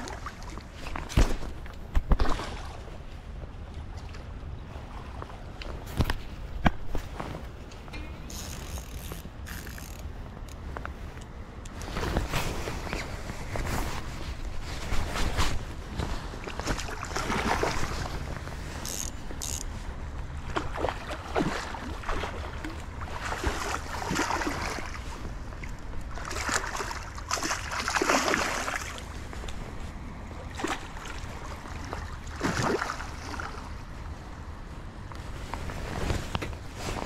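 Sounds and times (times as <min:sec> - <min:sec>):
wind: 0:00.0 - 0:37.0
river flow rumble: 0:06.9 - 0:35.1
fish splashing and thrashing: 0:14.9 - 0:29.4, 0:30.4 - 0:33.7.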